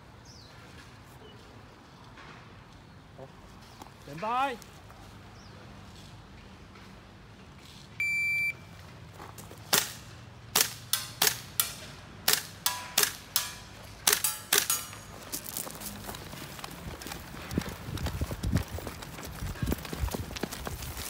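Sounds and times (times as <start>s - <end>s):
shot timer beep: 8.0s - 8.6s
airsoft rifle shots: 9.7s - 14.9s
metallic ring of steel targets: 12.6s - 15.2s.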